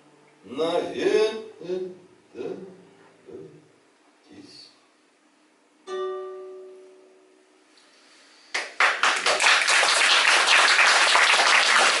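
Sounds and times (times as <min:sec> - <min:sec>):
acoustic guitar chord ringing: 0:05.8 - 0:07.7
audience applauding: 0:08.5 - 0:12.0.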